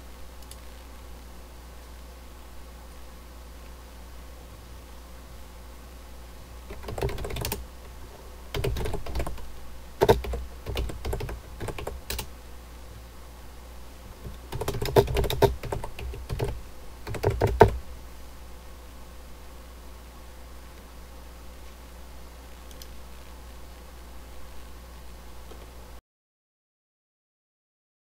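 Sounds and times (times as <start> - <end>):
low steady hum: 0.0 - 26.0
typing on keyboard: 6.7 - 7.6, 8.5 - 12.3, 14.2 - 17.8.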